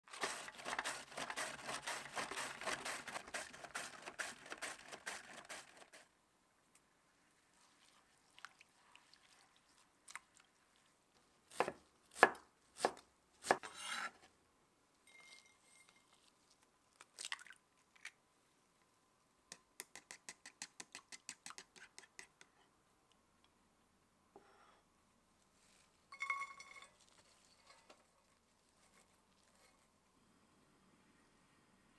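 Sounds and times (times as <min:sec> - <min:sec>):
cabbage slicing strokes: 0:00.1 - 0:06.0.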